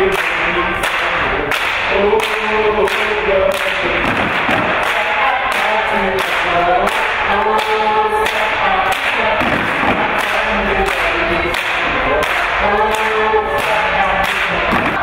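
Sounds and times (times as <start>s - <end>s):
hand claps: 0.0s - 15.0s
people singing: 0.0s - 15.0s
dancers stomping: 4.0s - 5.6s, 9.3s - 10.3s, 14.6s - 15.0s.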